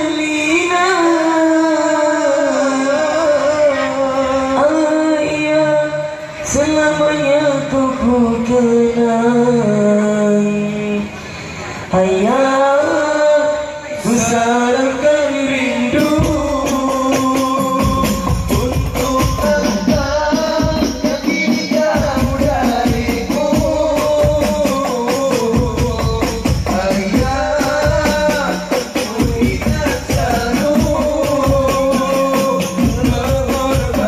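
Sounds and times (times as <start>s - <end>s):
men singing through microphones: 0.0s - 34.0s
frame drum beats: 15.9s - 34.0s.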